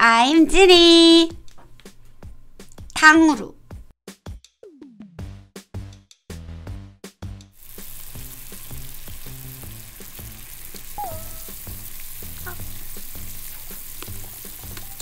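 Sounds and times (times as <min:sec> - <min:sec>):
background music with a beat: 0:03.6 - 0:07.6
syrup bubbling in a pot: 0:07.6 - 0:15.0.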